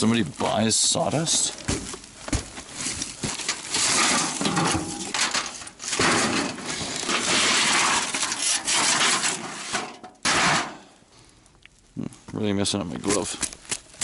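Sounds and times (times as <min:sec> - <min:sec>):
plastic bags rustling: 0:00.0 - 0:10.0
junk scraping and clattering: 0:00.8 - 0:10.9.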